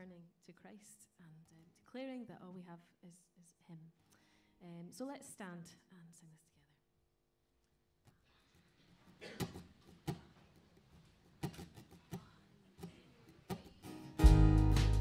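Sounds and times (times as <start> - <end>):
acoustic guitar strumming: 13.9 - 15.0.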